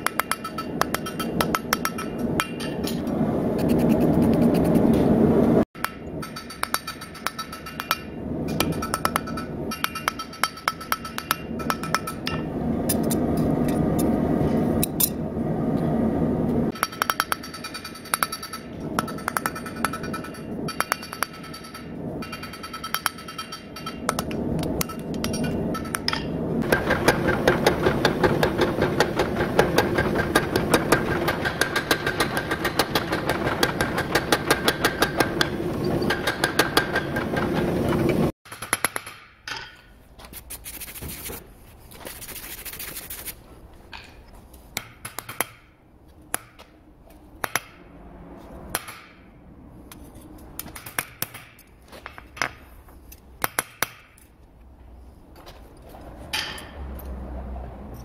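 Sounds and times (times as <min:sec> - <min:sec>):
hammer striking blade on anvil: 0:00.0 - 0:03.0, 0:05.8 - 0:13.2, 0:16.7 - 0:26.9
steady background noise: 0:00.0 - 0:58.0.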